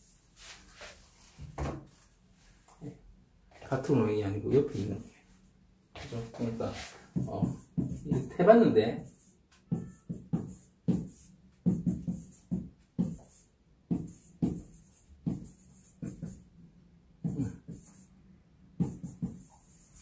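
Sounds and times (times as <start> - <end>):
marker writing on whiteboard: 6.0 - 16.5, 17.2 - 18.2, 18.8 - 20.0.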